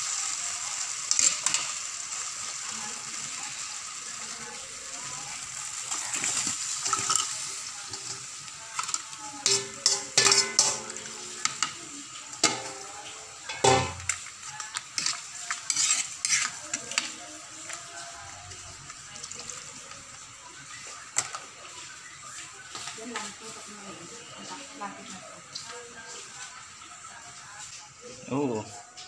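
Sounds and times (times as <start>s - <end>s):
metal ladle scraping metal pan: 6.2s - 8.2s, 8.8s - 11.8s, 12.4s - 17.2s.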